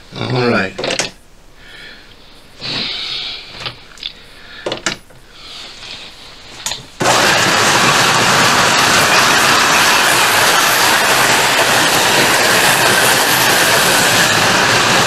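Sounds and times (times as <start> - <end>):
slot car motors whining: 7.0 - 15.0.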